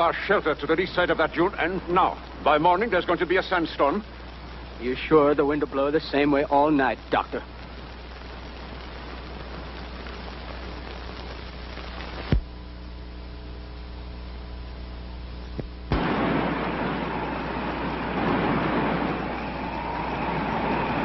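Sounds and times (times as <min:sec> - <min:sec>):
low steady hum: 0:00.0 - 0:21.0
wind rushing hiss: 0:15.9 - 0:21.0.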